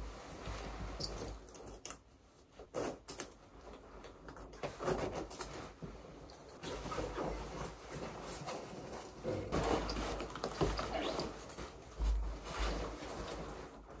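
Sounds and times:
leather jacket rustling: 4.8 - 14.0.

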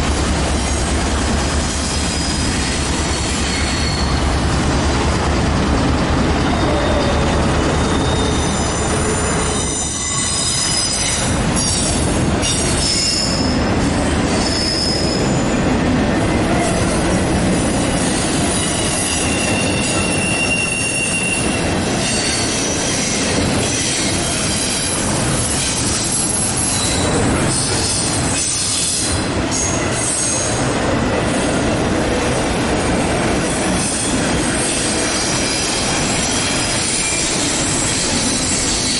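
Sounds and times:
diesel locomotive engine: 0.0 - 38.9
train wheels rumbling: 0.0 - 38.9
wheel flanges squealing: 1.6 - 4.4, 6.4 - 13.6, 17.9 - 30.6, 33.8 - 38.9.

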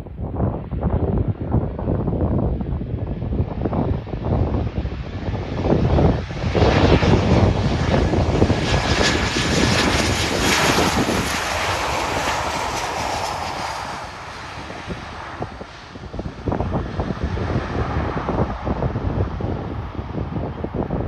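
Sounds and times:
jet airliner roaring past: 0.2 - 21.0.

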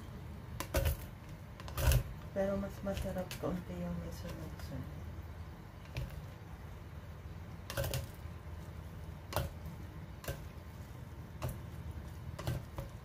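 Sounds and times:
spoon scraping clay pot: 0.6 - 4.7.

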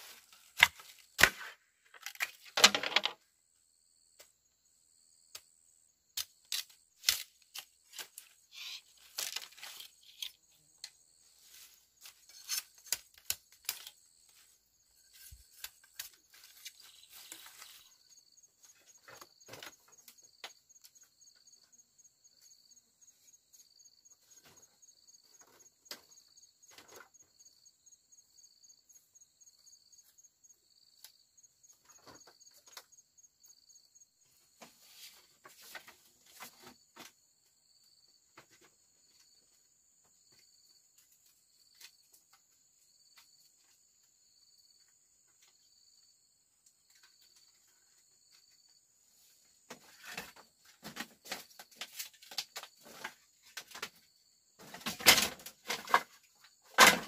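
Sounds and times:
cracks and rustles of handling: 0.0 - 3.2, 6.2 - 18.0, 49.6 - 54.0
insects chirring: 0.0 - 57.0.

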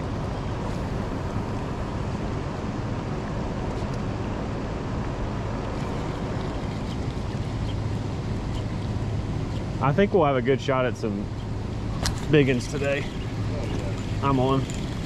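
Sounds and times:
boat motor running: 5.0 - 15.0.

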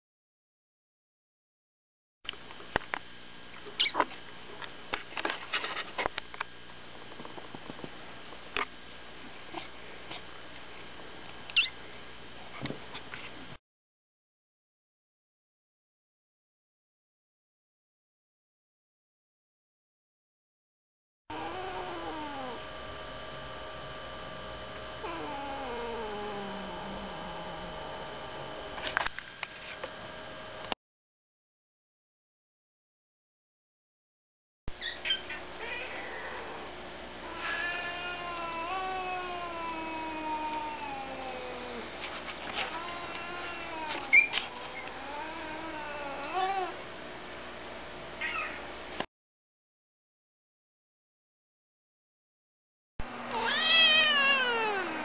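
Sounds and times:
cat growling: 21.3 - 22.8, 25.0 - 28.8, 35.6 - 46.8, 53.3 - 55.0.

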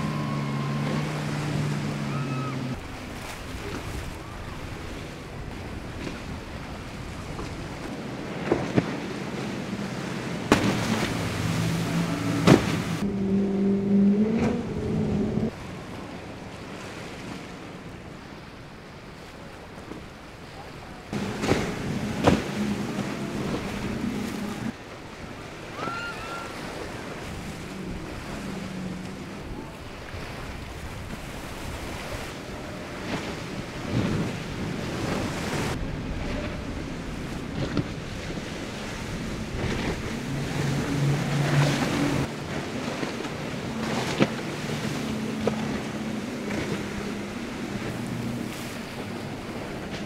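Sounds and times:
powerboat engines droning: 0.0 - 50.0
waves and surf: 0.0 - 50.0
wind on microphone: 21.1 - 50.0.

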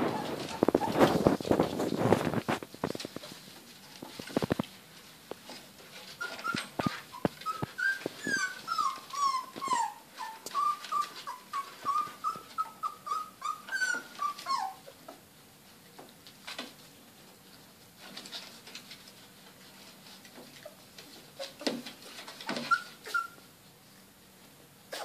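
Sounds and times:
dog whimpering: 0.0 - 1.3, 6.2 - 15.0, 22.4 - 23.5.

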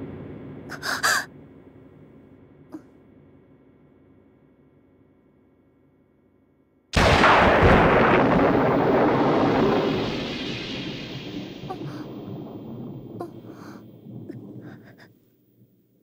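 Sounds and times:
thunderclap crack and rumble: 7.0 - 15.8.

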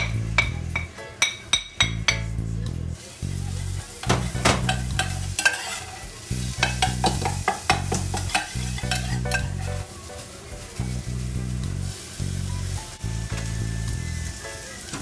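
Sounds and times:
spatula knocking on pan: 0.0 - 2.3, 4.0 - 5.6, 6.6 - 9.6
food sizzling as it fries: 0.0 - 15.0
metal spatula scraping saucepan: 4.4 - 9.8.

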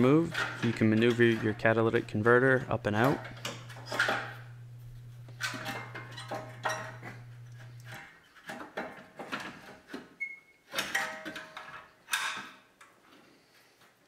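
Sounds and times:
metallic clunks and scrapes: 0.0 - 9.8
low hum: 0.3 - 7.9.

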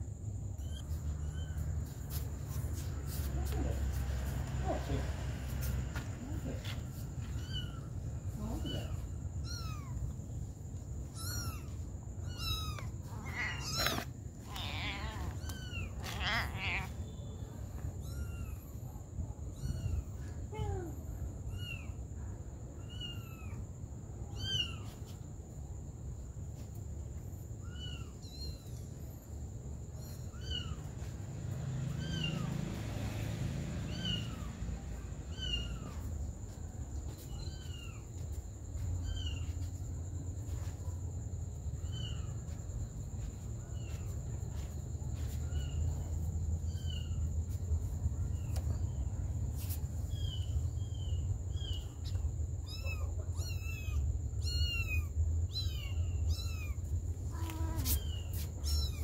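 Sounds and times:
kitten mewing: 11.1 - 17.0.

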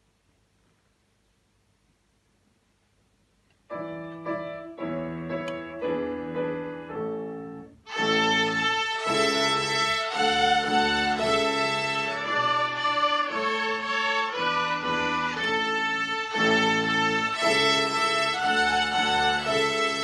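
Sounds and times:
violin ensemble playing a melody: 7.8 - 20.0.

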